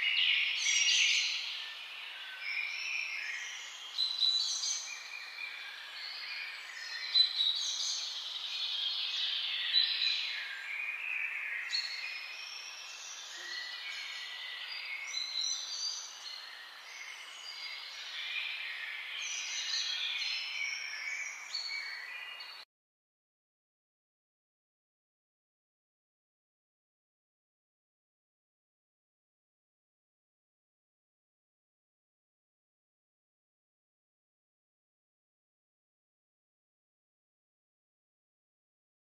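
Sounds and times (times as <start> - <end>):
small birds chirping and singing: 0.0 - 22.7.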